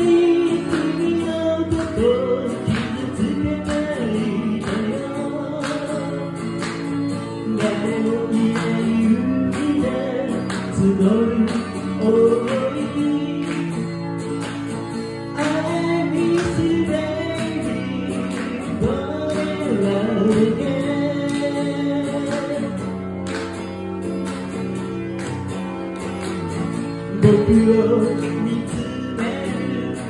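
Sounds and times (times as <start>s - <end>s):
man singing: 0.0s - 6.4s, 7.4s - 13.9s, 15.3s - 22.9s, 27.1s - 30.0s
strummed acoustic guitar: 0.0s - 30.0s.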